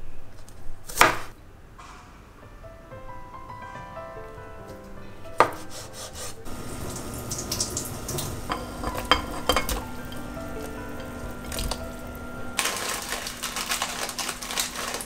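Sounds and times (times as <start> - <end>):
soft piano music: 1.5 - 15.0
sharp clack: 1.8 - 3.8
water boiling in a saucepan: 6.4 - 15.0
food clinking into a pan: 6.5 - 15.0.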